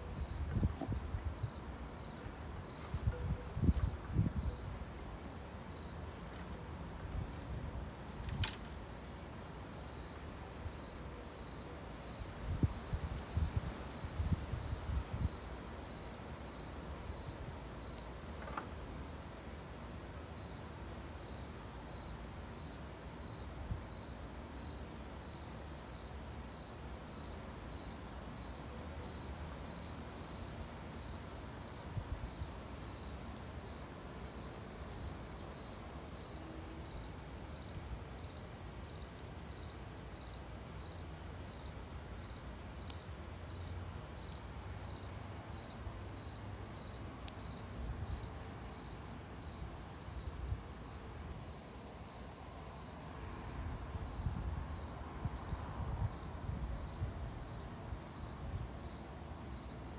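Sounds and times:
crickets chirping: 0:00.0 - 0:59.9
campfire popping: 0:05.6 - 0:10.7, 0:31.2 - 0:53.5.

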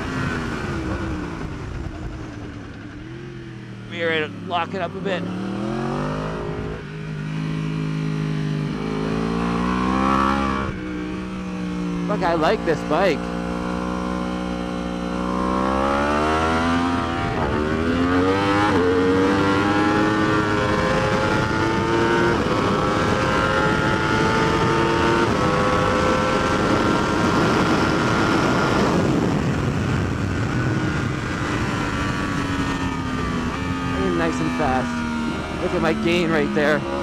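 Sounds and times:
motorcycle engine accelerating: 0:00.0 - 0:37.0
wind rush: 0:20.2 - 0:35.9.

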